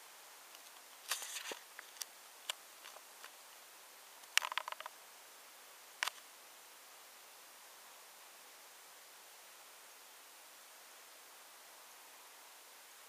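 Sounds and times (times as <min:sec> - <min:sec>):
faint hiss: 0:00.0 - 0:13.0
camera handling clicks and rattles: 0:00.6 - 0:02.1, 0:04.3 - 0:04.9.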